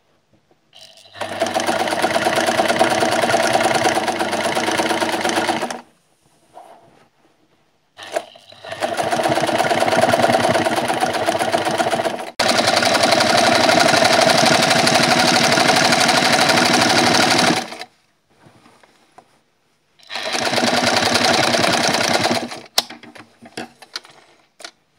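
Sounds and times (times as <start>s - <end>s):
sewing machine running: 0.8s - 5.8s, 8.0s - 17.9s, 20.0s - 22.7s.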